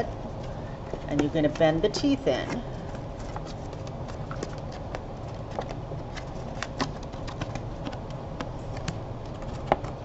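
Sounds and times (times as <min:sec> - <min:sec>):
steady low hum: 0:00.0 - 0:10.0
stiff paper crinkling: 0:02.7 - 0:10.0.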